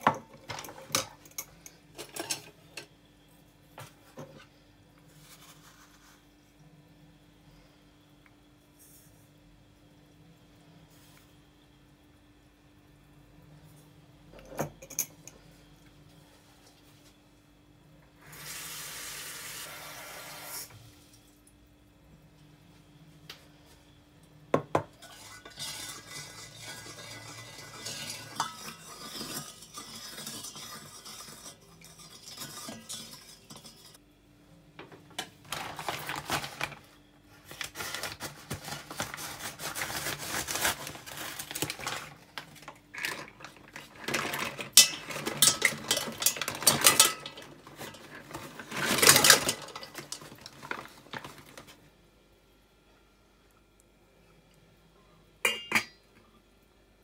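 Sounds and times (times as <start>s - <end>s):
spoon scraping a steel pot: 25.0s - 34.0s
clams clattering into a pot: 42.9s - 50.8s.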